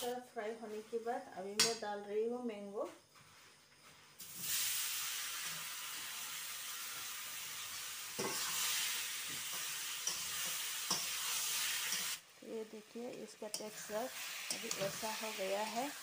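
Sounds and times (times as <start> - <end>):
food sizzling in hot oil: 4.2 - 16.0.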